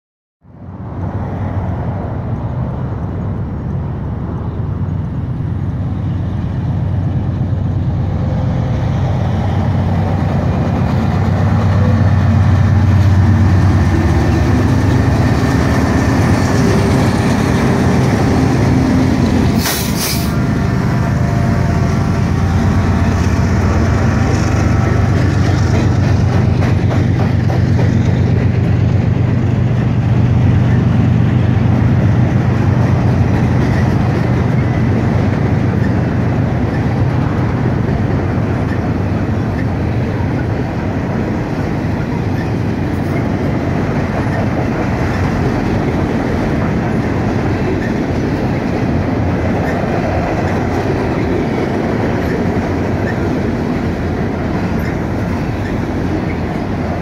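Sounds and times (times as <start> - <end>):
diesel locomotive engines droning: 0.4 - 57.0
freight cars rolling on rails: 0.8 - 57.0
sharp hiss: 19.6 - 20.4.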